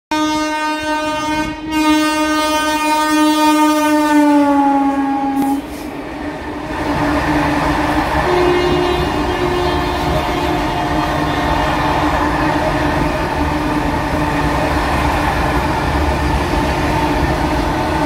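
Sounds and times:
locomotive horn blast: 0:00.1 - 0:05.8, 0:08.2 - 0:11.7.

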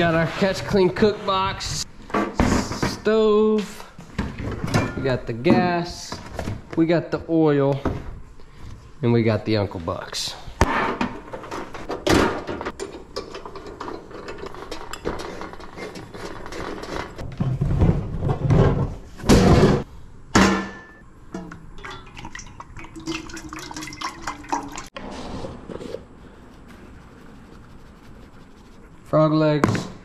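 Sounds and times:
oil pouring into a steel pot: 0:21.8 - 0:24.9.

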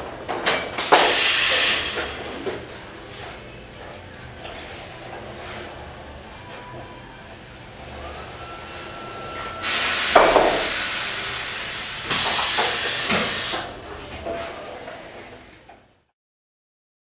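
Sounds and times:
compressed air hissing: 0:00.8 - 0:02.6, 0:09.6 - 0:13.8.

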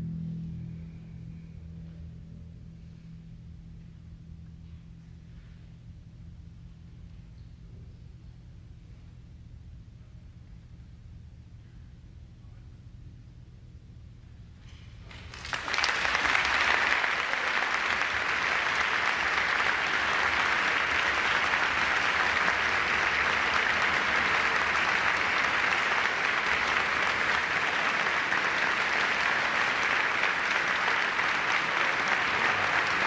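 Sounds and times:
audience applause: 0:15.1 - 0:33.0.

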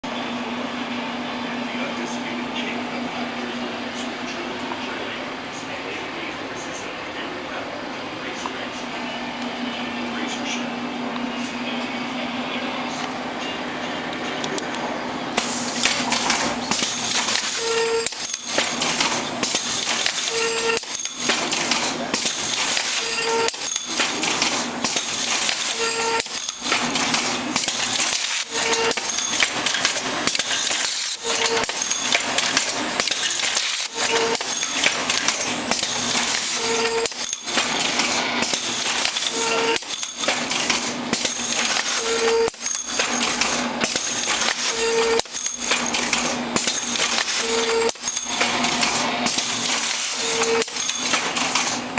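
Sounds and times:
machine mechanical clatter: 0:15.4 - 0:51.9.

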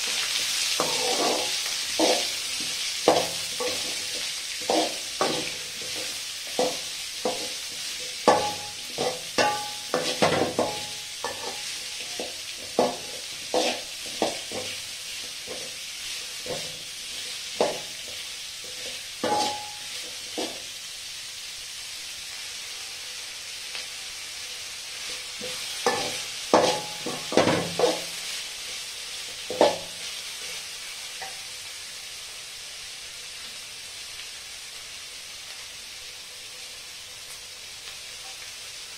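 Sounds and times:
metal spatula scraping a pan: 0:00.0 - 0:20.7, 0:25.0 - 0:31.4
onions sizzling in a pan: 0:00.0 - 0:38.9.

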